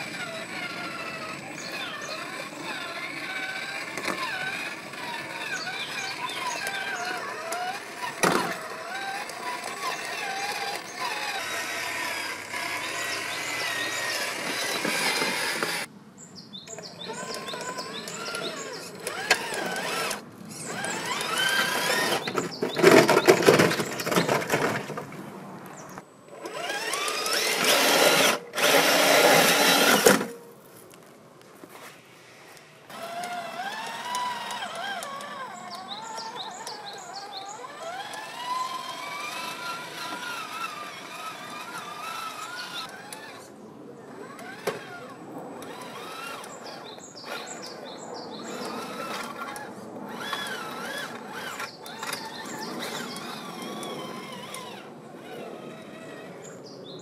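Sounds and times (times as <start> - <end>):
electric motor and gear whine: 0.0 - 15.9, 16.7 - 24.9, 25.7 - 30.4, 32.8 - 56.7.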